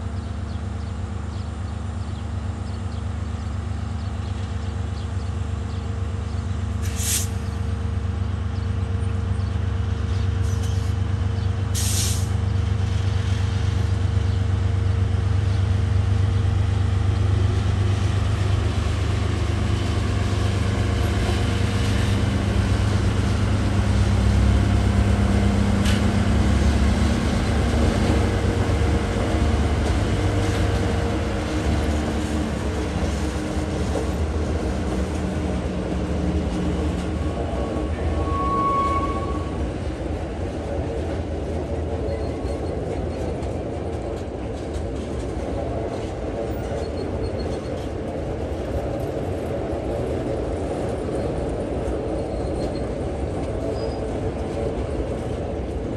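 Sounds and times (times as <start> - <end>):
diesel locomotive engine drone: 0.0 - 55.9
air hisses: 6.8 - 7.4, 11.8 - 12.3.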